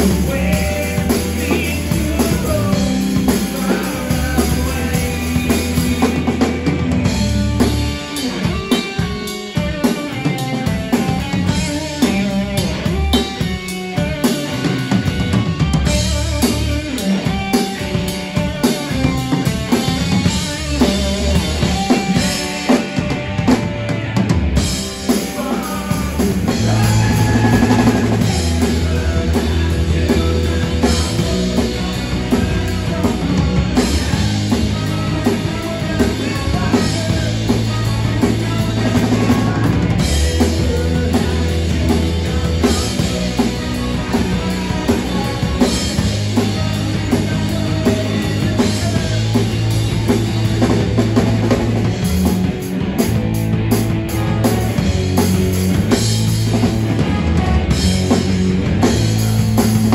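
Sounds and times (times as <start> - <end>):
drum kit: 0.0 - 59.9
live rock band: 0.0 - 59.9.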